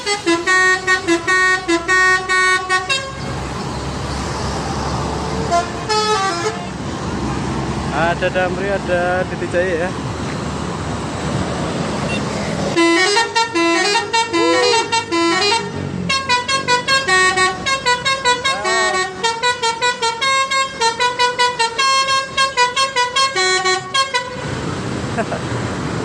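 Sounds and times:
musical bus horn playing tune: 0.0 - 3.4, 5.4 - 6.8, 12.8 - 24.6
bus engine running: 0.0 - 26.0.

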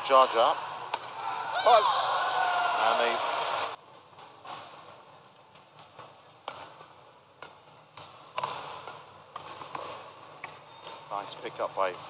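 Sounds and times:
arena background noise: 0.0 - 12.0
rackets hitting shuttlecock: 0.9 - 1.4, 5.5 - 11.1.

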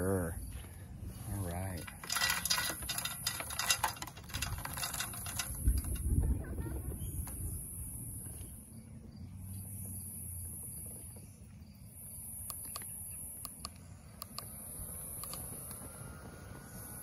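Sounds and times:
insects trilling: 0.0 - 17.0
sharp clicks: 12.4 - 15.9.

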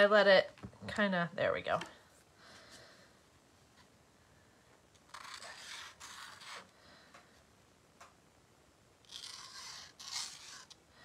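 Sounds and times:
pen scratching on paper: 5.1 - 6.6, 9.1 - 10.8.

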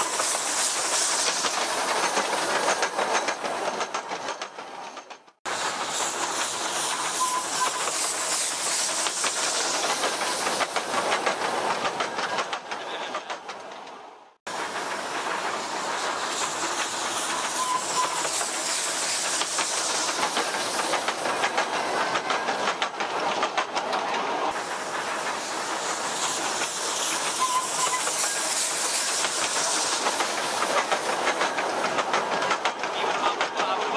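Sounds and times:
steam locomotive hissing: 0.0 - 33.9
wheels clicking over rails: 19.2 - 33.9.

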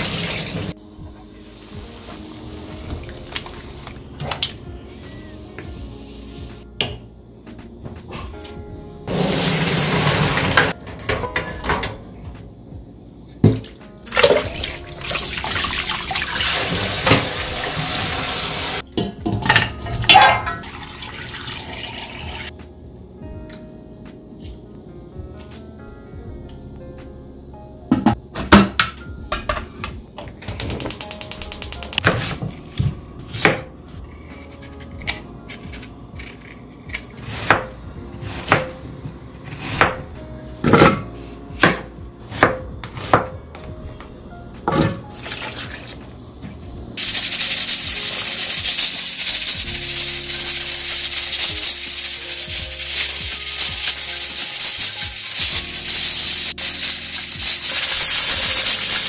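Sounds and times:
dishes and utensils clinking: 10.6 - 12.0, 19.0 - 20.8
loud steady hiss: 30.6 - 32.3, 46.0 - 59.0.

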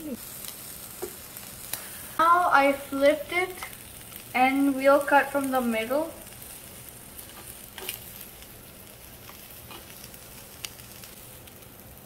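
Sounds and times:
omelette sizzling in pan: 0.0 - 12.0
spatula tapping and scraping pan: 7.3 - 8.0.

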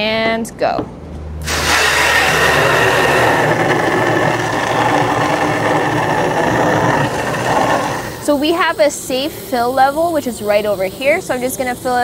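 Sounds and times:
water rushing into plastic can: 1.4 - 8.2.

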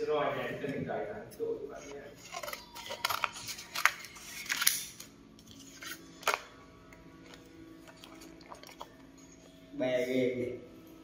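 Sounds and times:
faint background music: 0.0 - 11.0
scissors cutting paper: 2.2 - 6.4.

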